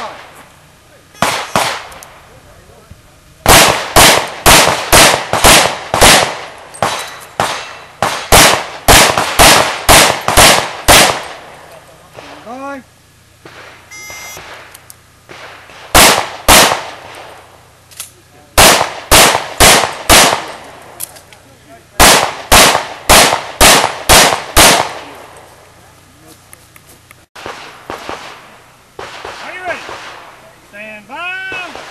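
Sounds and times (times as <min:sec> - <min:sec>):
pistol shots: 0:01.2 - 0:02.2, 0:03.4 - 0:11.6, 0:13.4 - 0:17.5, 0:18.6 - 0:21.2, 0:22.0 - 0:25.4, 0:27.4 - 0:30.4, 0:31.5 - 0:31.9.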